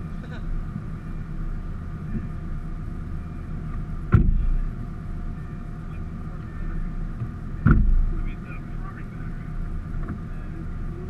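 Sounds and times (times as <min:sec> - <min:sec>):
car engine idling: 0:00.0 - 0:11.0
loud thump: 0:04.1 - 0:04.4, 0:07.6 - 0:08.1.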